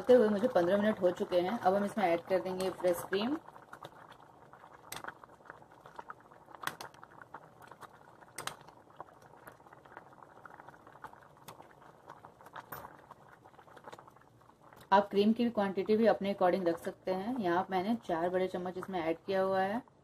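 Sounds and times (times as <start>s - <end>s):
food bubbling in a pan: 0.0s - 20.0s
sharp pops: 6.5s - 7.1s, 7.8s - 8.8s.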